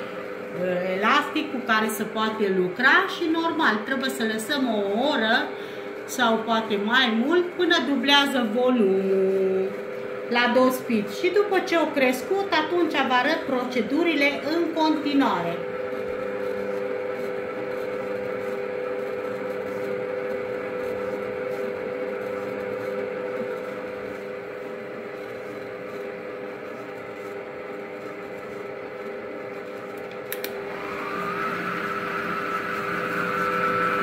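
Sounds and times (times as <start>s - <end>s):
stand mixer motor running: 0.0s - 34.0s
mixer click: 29.9s - 30.8s.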